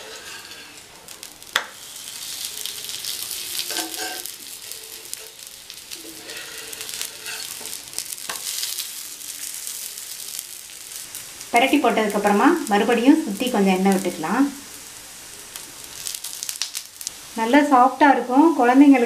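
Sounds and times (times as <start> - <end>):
metal spatula scraping pan: 0.0 - 0.9, 3.6 - 8.8
oil sizzling and crackling: 0.0 - 19.0.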